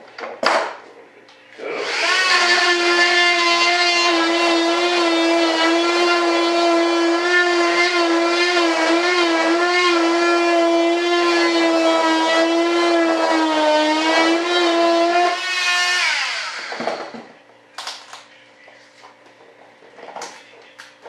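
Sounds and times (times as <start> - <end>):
electric cutting tool buzzing: 1.6 - 17.3.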